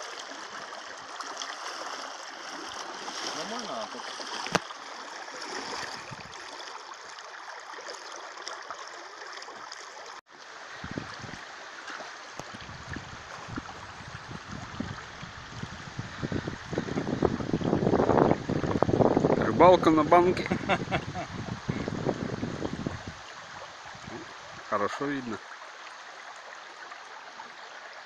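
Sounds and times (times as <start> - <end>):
river rushing over stones: 0.0 - 28.0
wind rumbling on microphone: 5.8 - 6.4, 10.7 - 11.5, 12.4 - 24.7.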